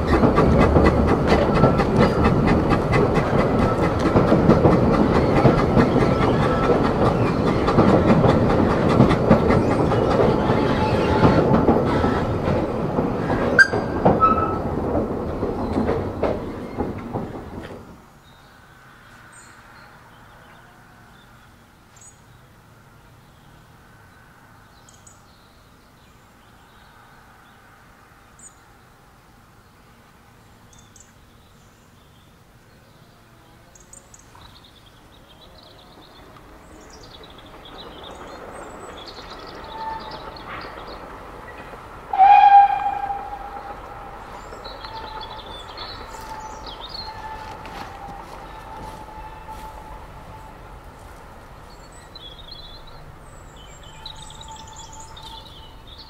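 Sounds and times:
steam locomotive approaching: 0.0 - 31.1, 33.3 - 56.0
birds chirping faintly: 29.6 - 56.0
steam whistle blast: 42.1 - 43.8.

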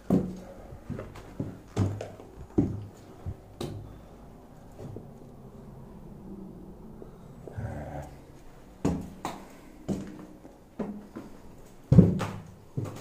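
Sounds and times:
footsteps on carpeted stairs: 0.0 - 5.3, 8.4 - 13.0.

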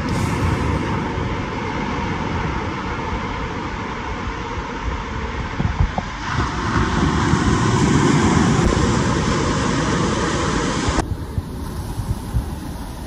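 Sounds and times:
small waves breaking on sand: 6.2 - 13.0.

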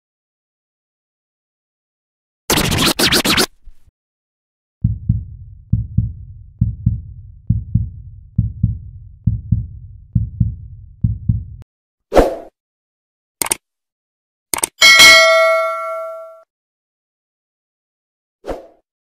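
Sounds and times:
heartbeat thumps: 4.8 - 11.6.

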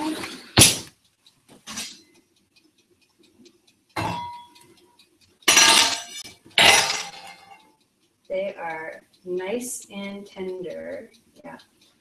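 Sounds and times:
pot lid clanking: 4.0 - 4.4, 5.5 - 7.5.

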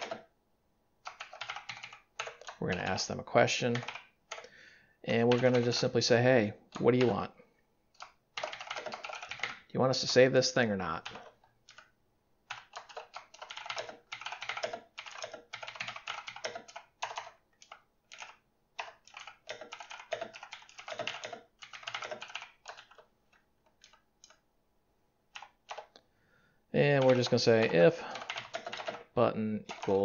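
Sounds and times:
typing on keyboard: 0.0 - 0.3, 1.0 - 3.0, 3.6 - 4.5, 5.2 - 5.9, 7.9 - 10.2, 11.0 - 11.9, 12.5 - 24.4, 25.3 - 26.0, 26.8 - 30.0.

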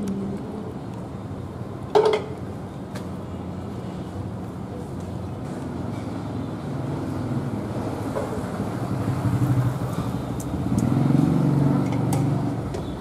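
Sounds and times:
passing vehicle engine hum: 5.5 - 13.0.

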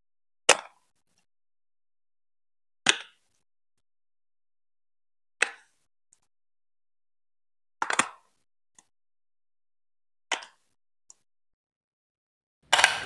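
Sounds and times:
plastic bricks clicking together: 7.8 - 8.9.

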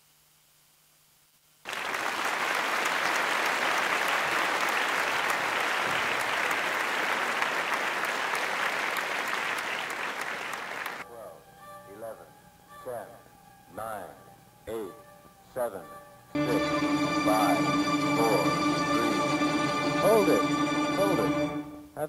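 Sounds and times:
crowd applause and cheering: 1.7 - 11.0, 16.4 - 21.9.

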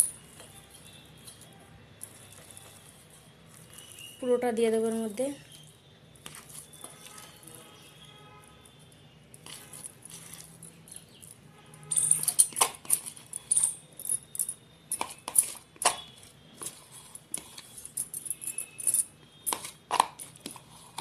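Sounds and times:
spoon scraping and knocking bowl: 6.2 - 7.6, 9.3 - 13.8, 14.9 - 21.0.

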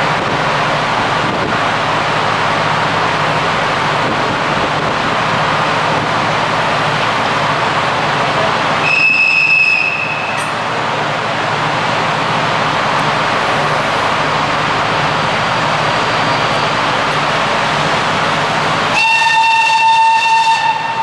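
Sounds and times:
diesel train engine idling: 0.0 - 21.0.

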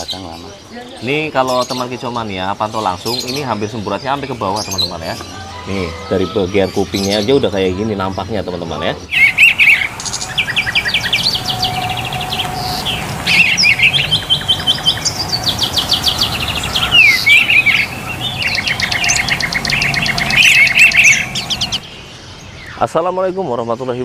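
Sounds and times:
songbirds trilling: 0.0 - 24.0
whistled bird notes: 9.0 - 22.8.

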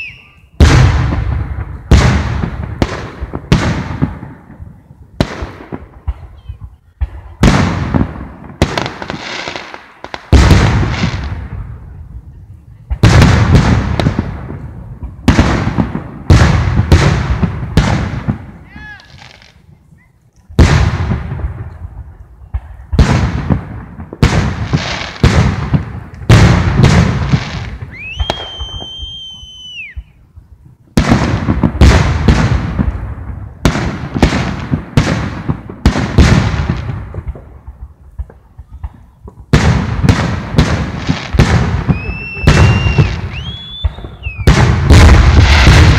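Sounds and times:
high steady whistle: 0.0 - 0.6, 27.9 - 30.2, 41.9 - 44.5
fireworks bursting: 0.0 - 45.9.

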